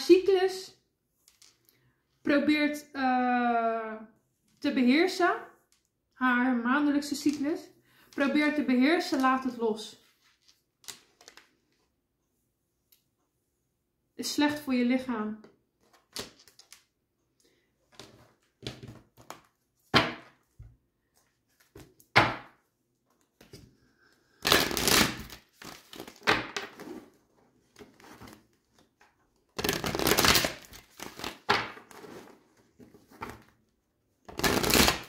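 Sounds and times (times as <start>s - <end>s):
cards shuffling: 29.6s - 33.5s, 34.3s - 35.0s.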